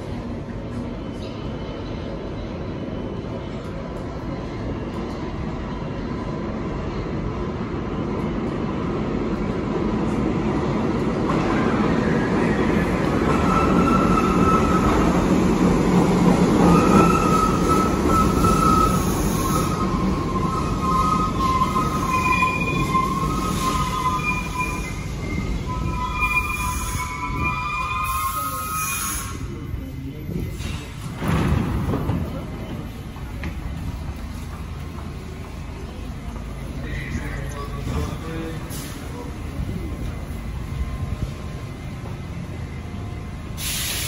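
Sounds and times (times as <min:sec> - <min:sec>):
train wheels rumbling on rails: 0:00.0 - 0:44.0
high squeals from wheels and brakes: 0:12.0 - 0:15.4, 0:16.6 - 0:31.0.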